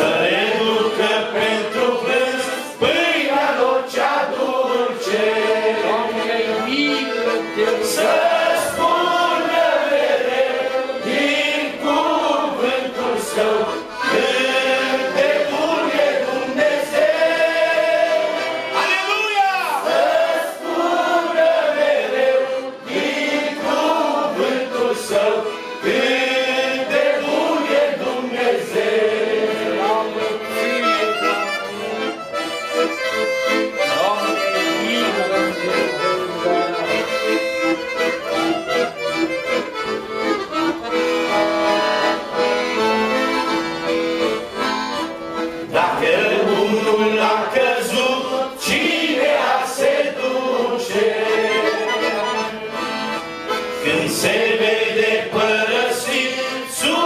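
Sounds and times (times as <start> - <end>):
man singing: 0.0 - 9.4, 33.9 - 36.9, 45.7 - 49.2, 53.8 - 57.0
accordion playing hymn tune: 0.0 - 57.0.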